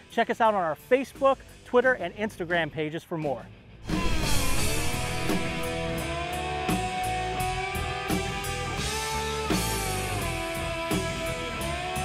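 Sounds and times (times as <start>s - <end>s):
steady drum beat: 3.8s - 6.3s.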